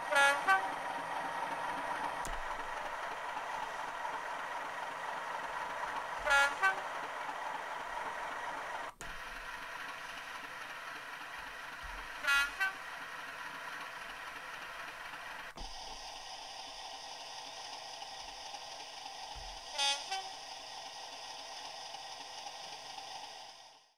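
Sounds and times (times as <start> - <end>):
two-note horn blasts: 0.0 - 0.9, 6.2 - 7.1, 12.2 - 12.9, 19.7 - 20.4
diesel locomotive engine running: 0.0 - 23.9.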